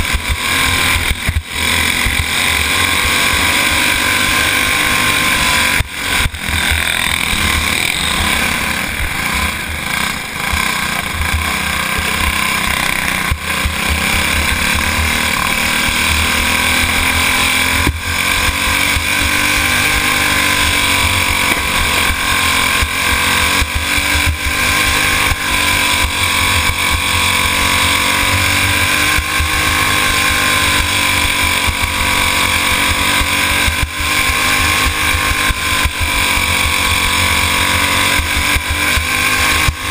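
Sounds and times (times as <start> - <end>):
go-kart engine racing: 0.0 - 39.9.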